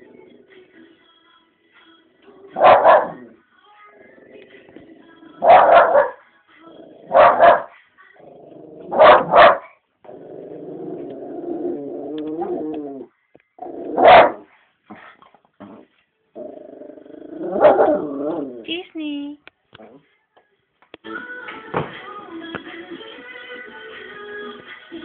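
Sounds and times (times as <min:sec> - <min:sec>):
dog barking: 0:02.6 - 0:03.3, 0:05.4 - 0:06.2, 0:07.1 - 0:07.8, 0:08.9 - 0:09.8, 0:14.0 - 0:15.1, 0:17.6 - 0:18.1.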